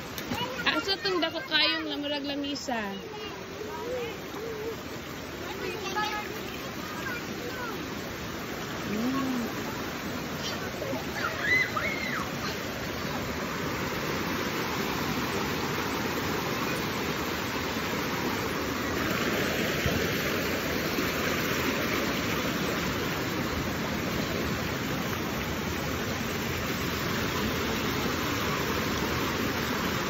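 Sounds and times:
stream rushing over rocks: 0.0s - 30.0s.

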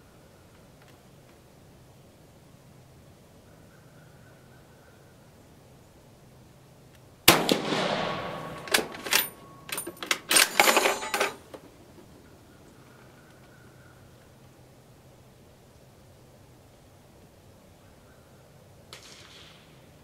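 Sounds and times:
rifle shot: 7.3s - 9.7s, 18.9s - 19.8s
rifle bolt metallic clacks: 7.3s - 11.5s.

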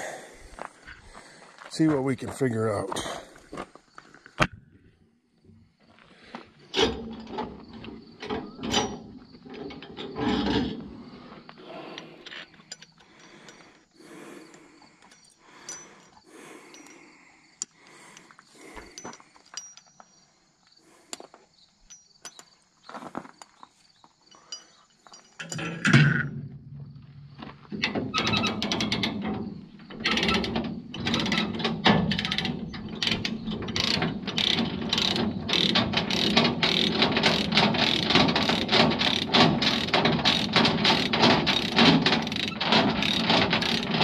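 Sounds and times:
chain clanking and rattling: 6.6s - 17.6s, 18.2s - 20.3s, 24.2s - 44.0s
chain binder metallic clicks: 11.9s - 13.8s, 24.3s - 26.4s, 27.8s - 44.0s.

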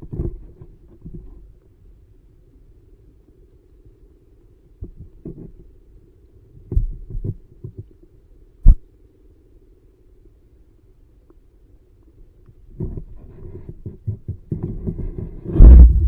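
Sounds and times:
muffled underwater thumps and knocks: 0.0s - 1.4s, 4.8s - 5.8s, 6.6s - 8.0s, 12.7s - 16.0s
low steady rumble: 0.0s - 16.0s.

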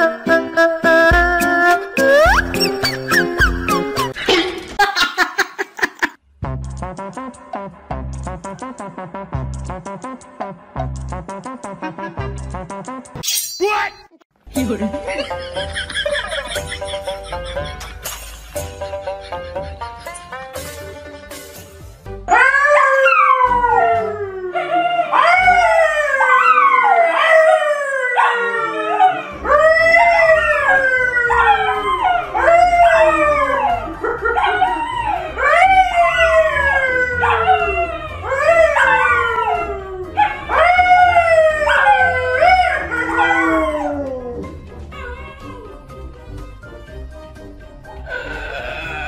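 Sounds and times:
man and dogs howling: 22.3s - 45.8s.

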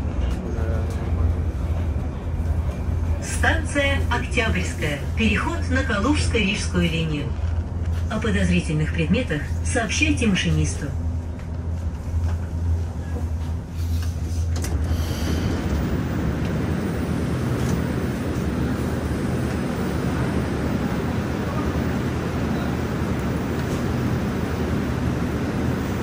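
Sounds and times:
train rushing noise: 9.3s - 26.0s.

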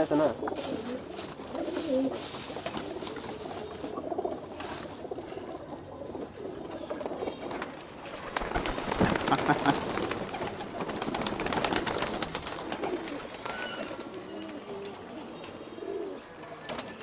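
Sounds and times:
pigeons cooing: 0.0s - 17.0s
wing flap: 7.0s - 14.1s.

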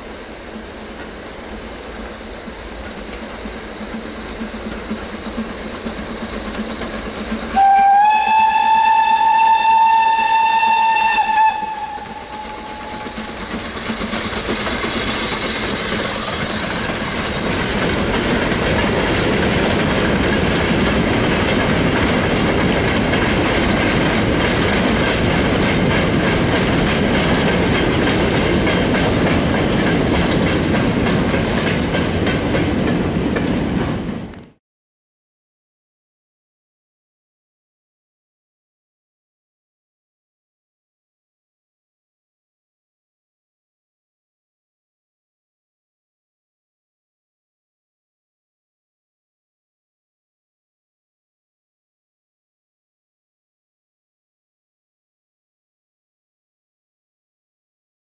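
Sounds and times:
train wagons rolling by: 0.0s - 34.6s
steam hissing: 0.1s - 9.0s, 11.6s - 20.9s
steam locomotive whistle: 7.4s - 13.4s.

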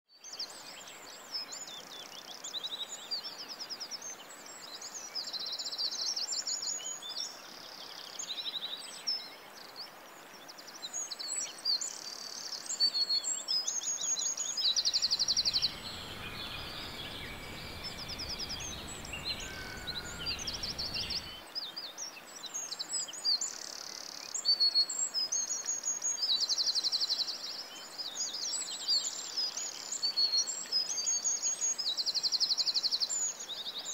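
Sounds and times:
songbirds chirping and trilling: 13.9s - 21.5s
low rumbling noise: 15.0s - 21.4s.

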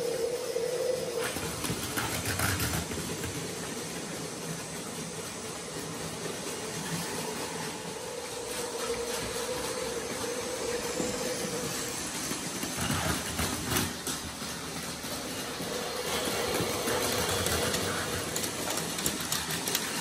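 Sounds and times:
high motor whine: 0.0s - 20.0s
toy train motors whirring: 0.0s - 20.0s.

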